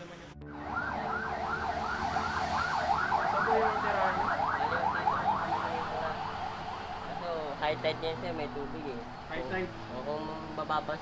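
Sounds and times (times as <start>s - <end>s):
electronic siren warbling: 0.4s - 7.2s.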